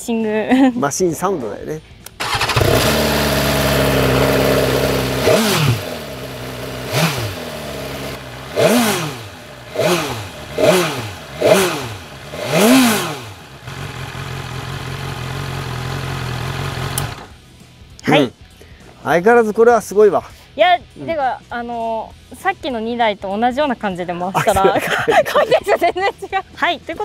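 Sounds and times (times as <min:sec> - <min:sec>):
motorcycle engine idling and revving: 0:02.1 - 0:17.9.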